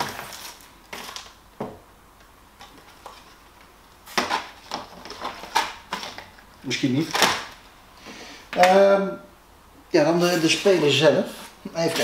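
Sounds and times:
plastic rustling and clattering: 0:00.0 - 0:01.8, 0:02.6 - 0:07.6.

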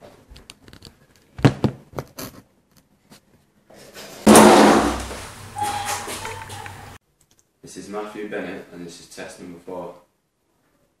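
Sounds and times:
knocks and thuds: 0:04.3 - 0:05.4.

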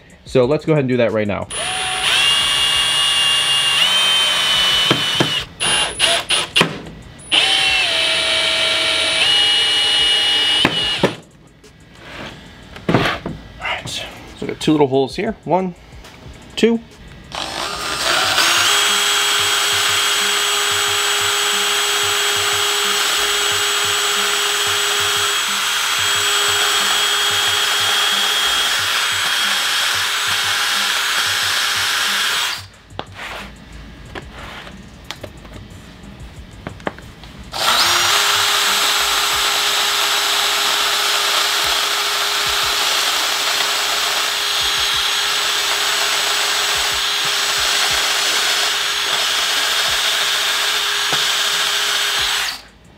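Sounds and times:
cordless drill boring wood: 0:01.5 - 0:06.6, 0:07.3 - 0:11.2, 0:17.3 - 0:32.7, 0:37.6 - 0:52.7.

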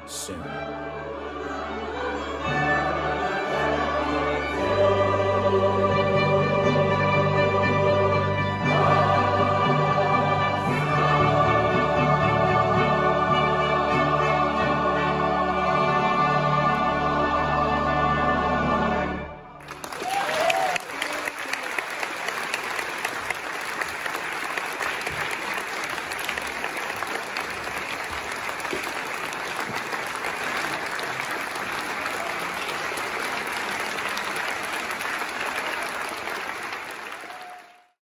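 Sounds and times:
audience applauding: 0:19.6 - 0:38.0.

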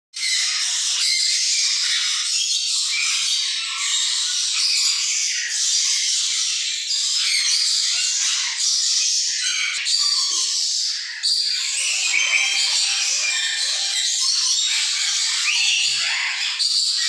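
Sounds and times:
caged birds chirping and squawking: 0:00.2 - 0:17.0.

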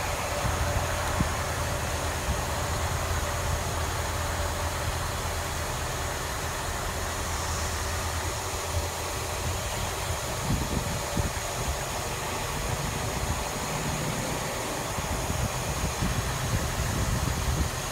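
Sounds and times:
train engine hum and rumble: 0:00.0 - 0:17.9.

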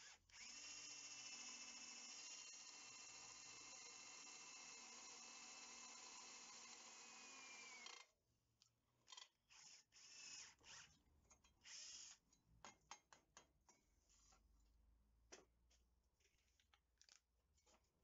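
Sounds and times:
drill boring through steel: 0:00.0 - 0:08.0.

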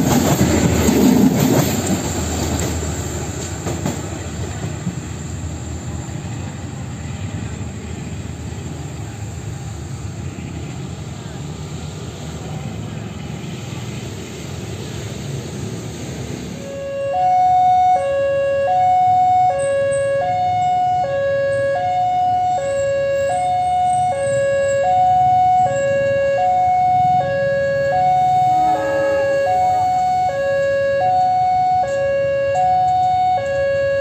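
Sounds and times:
train rumble: 0:00.0 - 0:34.0
two-tone level crossing alarm: 0:16.6 - 0:34.0.

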